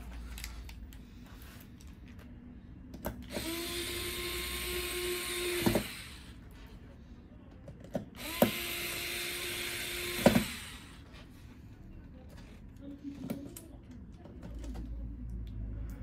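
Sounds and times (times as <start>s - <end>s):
electric screwdriver motor whine: 3.3s - 6.4s, 8.2s - 11.0s.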